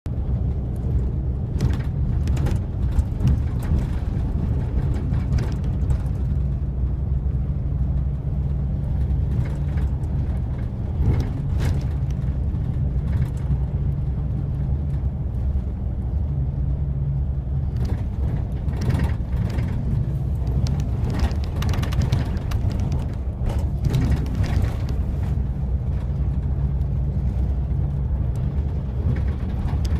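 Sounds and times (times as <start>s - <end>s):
bus engine and road rumble: 0.0s - 29.9s
clicks and rattles: 17.7s - 27.0s.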